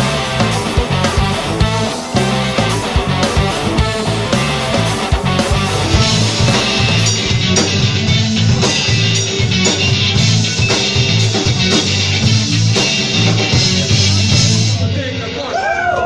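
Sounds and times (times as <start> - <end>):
bass guitar: 0.0 - 15.3
electric guitars: 0.0 - 15.4
drum kit beat: 0.1 - 14.8.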